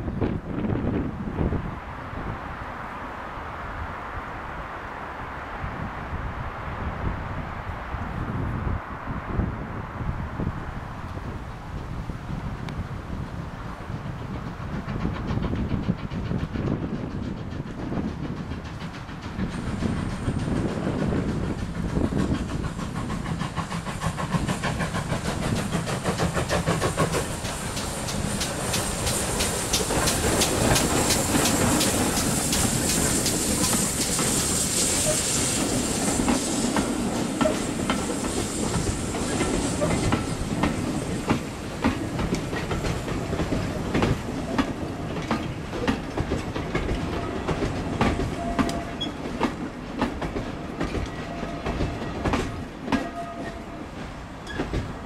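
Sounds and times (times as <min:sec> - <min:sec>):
steam locomotive exhaust beating: 0:11.2 - 0:55.0
wheels clicking over rail joints: 0:13.9 - 0:34.4, 0:35.0 - 0:55.0.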